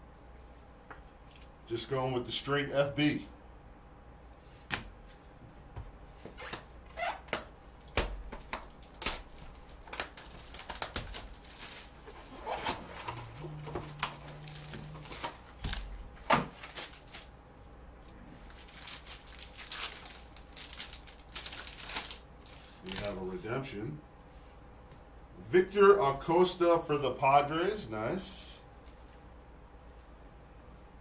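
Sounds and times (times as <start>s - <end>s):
foil wrapper crinkling and tearing: 8.4s - 17.3s, 18.4s - 23.3s.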